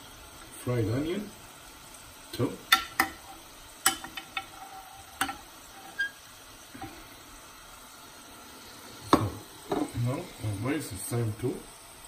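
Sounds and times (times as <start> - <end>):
faint frying sizzle: 0.0 - 12.0
utensil clicking on cookware: 2.6 - 4.5, 5.2 - 6.0.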